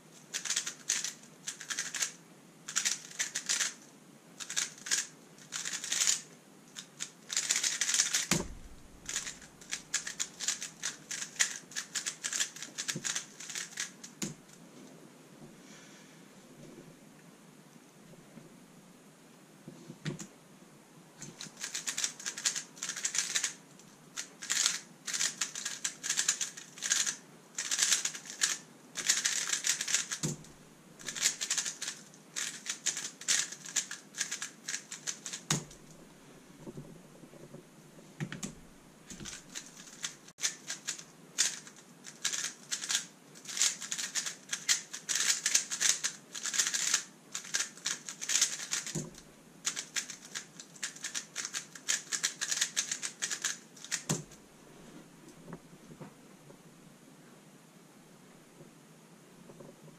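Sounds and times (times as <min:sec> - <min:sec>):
puzzle cube plastic clicks: 0:00.2 - 0:03.8, 0:04.4 - 0:08.4, 0:09.0 - 0:14.3, 0:21.2 - 0:23.6, 0:24.2 - 0:30.4, 0:31.0 - 0:35.8, 0:39.1 - 0:54.3.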